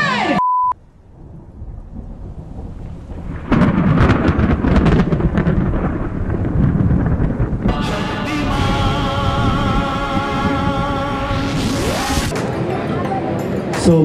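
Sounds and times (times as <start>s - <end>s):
short steady beep: 0.4s - 0.8s
thunder crash with crackling: 1.0s - 12.3s.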